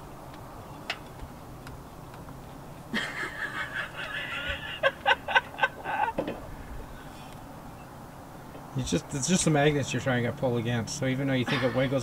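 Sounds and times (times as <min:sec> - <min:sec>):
woman laughing: 0:02.9 - 0:06.2.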